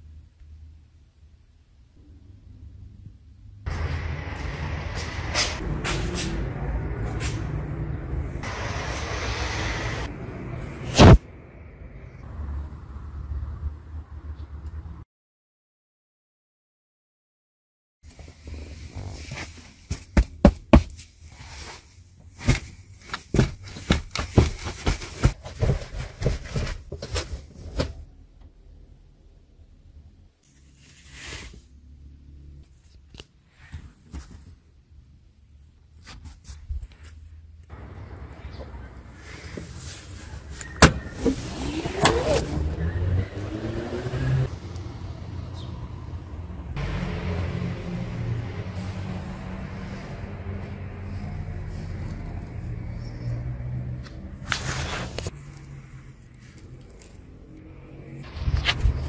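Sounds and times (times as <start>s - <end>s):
seat belt retractor whirring: 40.8s - 42.8s.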